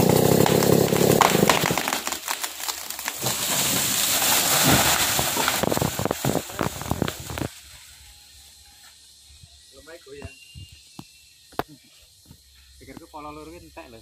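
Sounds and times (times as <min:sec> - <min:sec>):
chainsaw engine running low: 0:00.0 - 0:02.2
tree cracking and crashing down: 0:00.0 - 0:07.6
branches breaking through leaves: 0:00.2 - 0:07.8.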